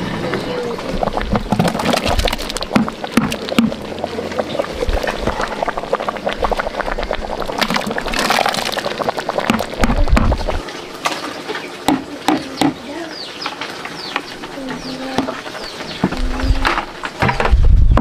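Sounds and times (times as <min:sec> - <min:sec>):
liquid mash pouring and splashing: 0:00.8 - 0:11.9
ladle knocking: 0:01.3 - 0:04.0, 0:09.4 - 0:10.6.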